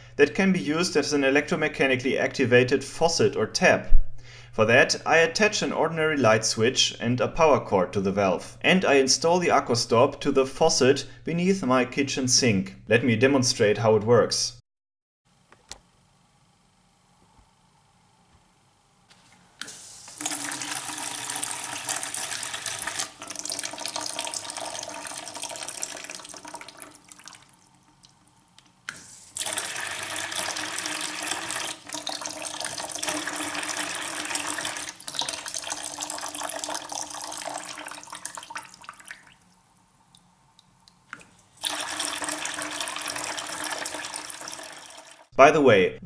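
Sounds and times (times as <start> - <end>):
water splashing into plastic bucket: 29.4 - 39.4, 41.6 - 45.2.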